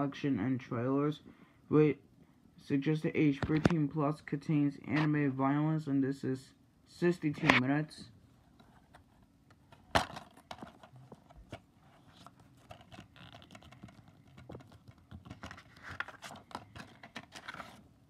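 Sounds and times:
plastic case clicking: 12.6s - 17.6s.

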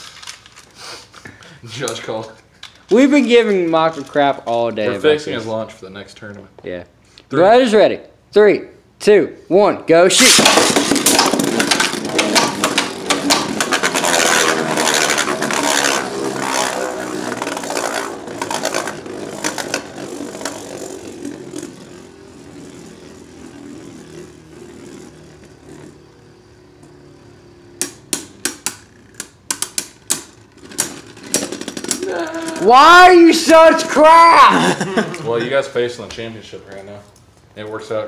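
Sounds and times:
spinning tops clattering: 10.2s - 23.8s, 27.9s - 32.9s
spinning tops whirring: 10.2s - 35.4s.

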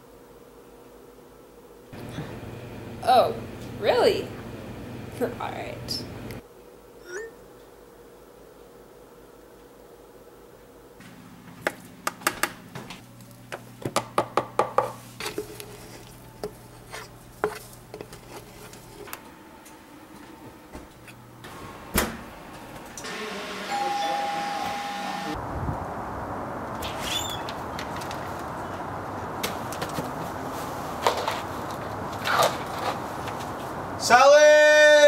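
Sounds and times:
short steady tone: 23.6s - 25.4s.

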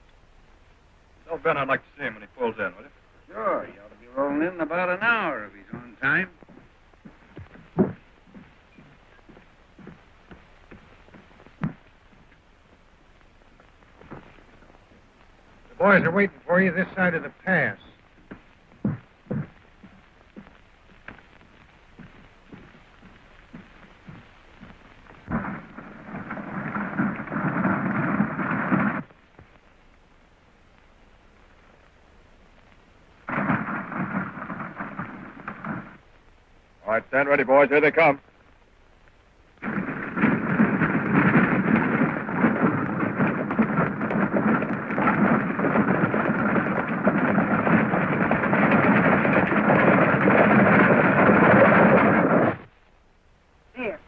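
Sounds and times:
galloping hooves and wheels clattering: 3.4s - 29.5s, 33.3s - 36.1s, 39.6s - 52.8s
rattling wheels: 39.6s - 52.7s.

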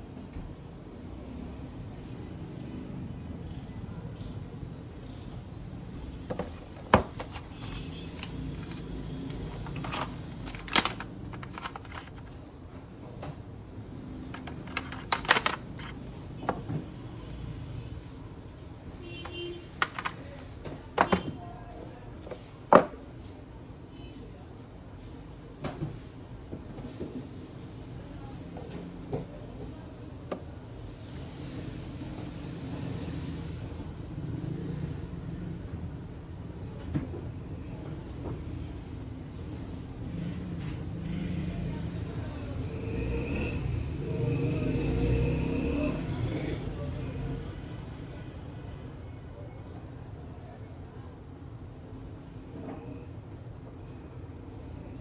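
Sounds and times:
phone and cardboard box handling: 6.3s - 12.4s, 14.4s - 16.0s.

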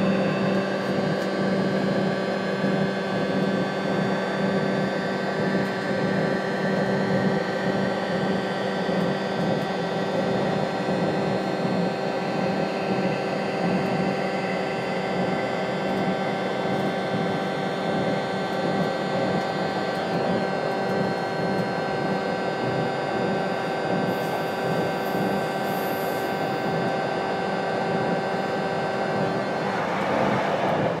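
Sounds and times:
train electrical hum and whine: 0.0s - 31.0s
low rumble: 29.2s - 31.0s
broad rushing noise: 29.3s - 31.0s.

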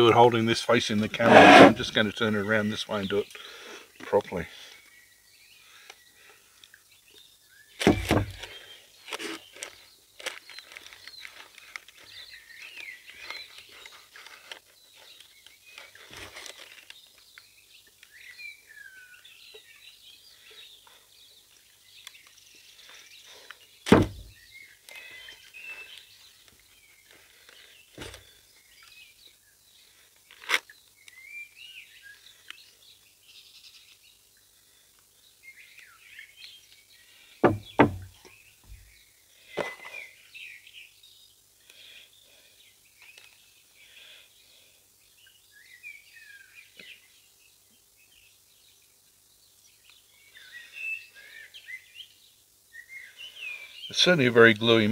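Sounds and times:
birds chirping: 31.2s - 44.6s.

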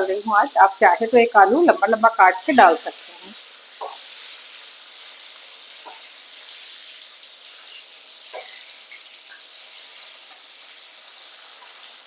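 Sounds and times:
fish sizzling in oil: 0.0s - 12.0s
metal spatula tapping pan: 3.8s - 4.1s, 5.8s - 6.1s, 8.3s - 8.6s.

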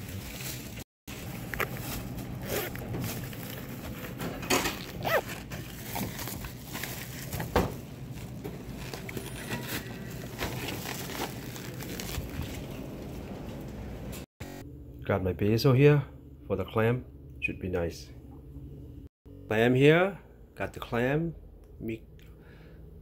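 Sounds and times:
plastic bag rustling: 0.0s - 13.5s
low steady hum: 7.8s - 23.0s.

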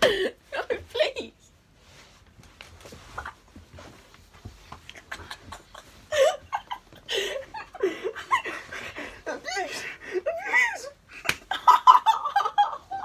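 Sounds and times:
young man laughing: 4.9s - 9.7s, 10.3s - 13.0s.

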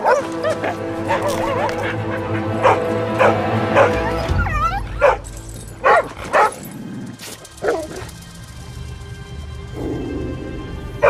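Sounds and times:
dog barking: 0.0s - 6.7s, 7.6s - 8.2s
dog yelping: 0.0s - 6.7s, 7.6s - 8.2s
background music: 0.0s - 11.0s.

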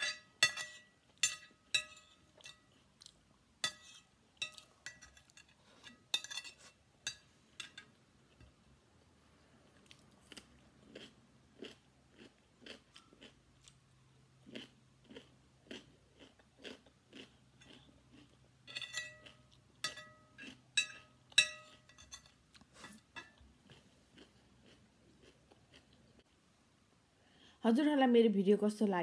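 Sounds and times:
chewing raw cucumber: 9.6s - 18.6s, 23.4s - 26.4s.

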